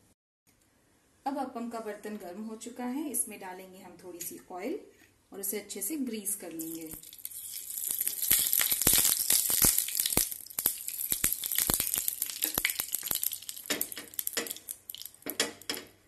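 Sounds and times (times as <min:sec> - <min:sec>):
oil sizzling and crackling: 0:06.6 - 0:15.9.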